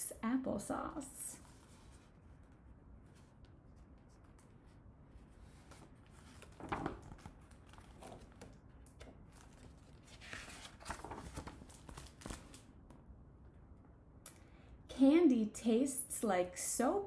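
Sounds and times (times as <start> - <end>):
book pages turning: 1.4 - 12.7.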